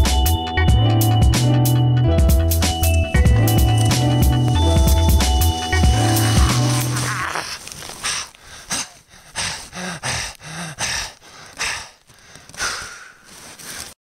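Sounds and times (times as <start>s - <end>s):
man breathing heavily: 4.2s - 14.0s.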